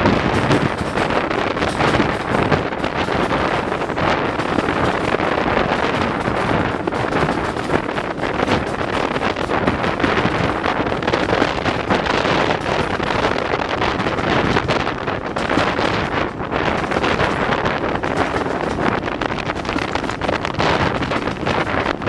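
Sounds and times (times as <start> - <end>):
train running noise: 0.0 - 22.0
wind buffeting microphone: 0.0 - 22.0.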